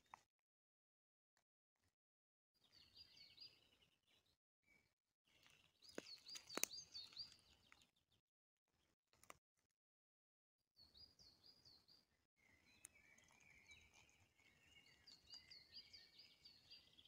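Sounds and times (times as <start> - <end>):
high bird chirps: 10.8 - 17.0.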